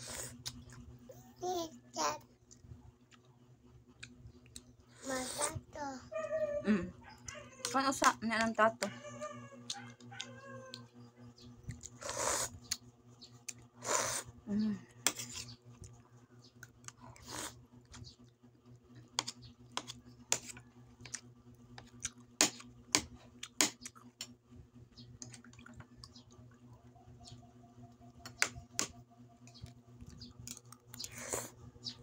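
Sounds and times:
steady low hum: 0:00.0 - 0:32.0
spoon scraping plate: 0:15.1 - 0:15.6, 0:19.1 - 0:20.6.

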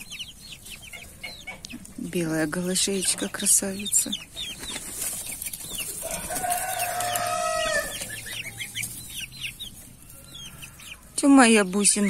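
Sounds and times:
chicks and goslings peeping: 0:00.0 - 0:12.0
rooster crowing: 0:06.0 - 0:08.8, 0:10.0 - 0:11.2.

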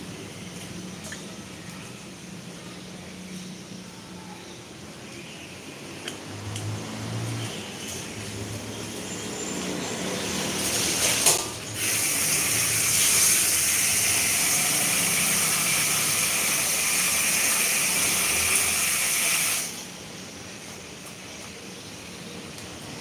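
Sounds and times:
water running from a tap: 0:09.6 - 0:19.9.

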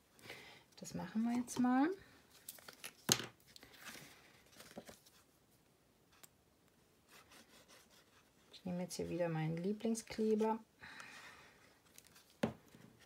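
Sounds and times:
paper rustling: 0:02.3 - 0:05.3.

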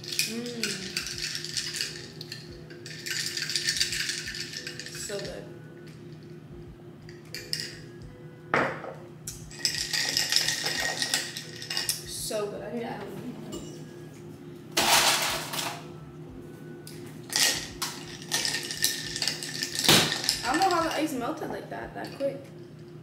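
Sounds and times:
ice cubes clinking in a cup: 0:00.0 - 0:05.4, 0:09.5 - 0:12.0, 0:17.3 - 0:21.0.

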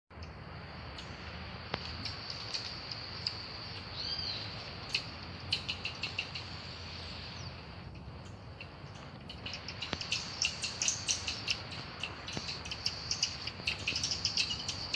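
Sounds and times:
high insect drone: 0:00.2 - 0:14.9
marmosets chirping: 0:00.9 - 0:14.9.

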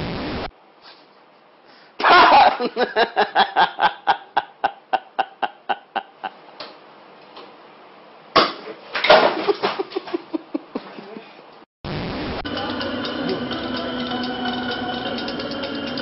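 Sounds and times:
person laughing: 0:02.0 - 0:06.4, 0:09.4 - 0:11.4.

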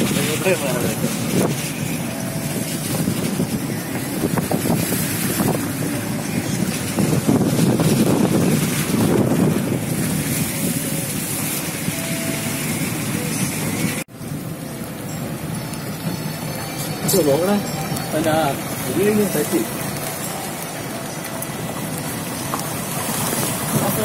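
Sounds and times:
wind rushing over microphone: 0:00.0 - 0:16.5
car road noise: 0:00.0 - 0:24.0.

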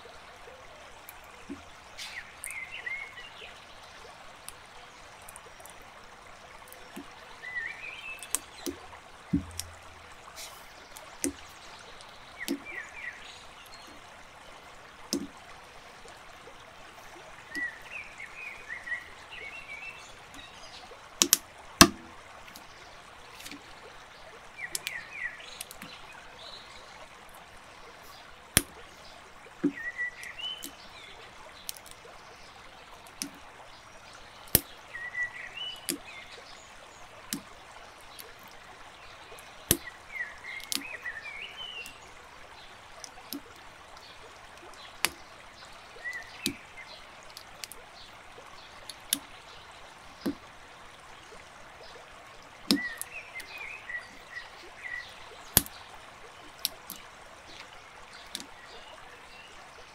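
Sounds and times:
plastic bricks snapping together: 0:21.2 - 0:22.6.

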